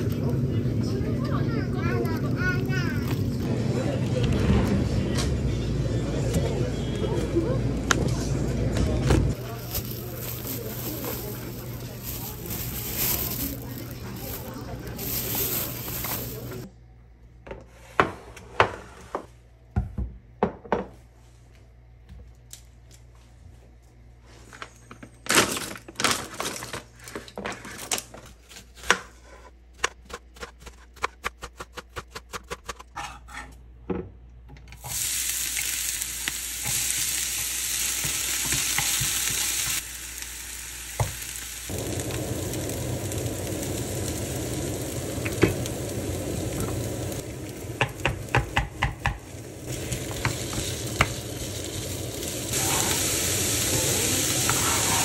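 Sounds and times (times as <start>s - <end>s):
kitchen exhaust fan: 0.0s - 55.0s
onion sizzling in frying pan: 9.3s - 16.7s, 34.8s - 55.0s.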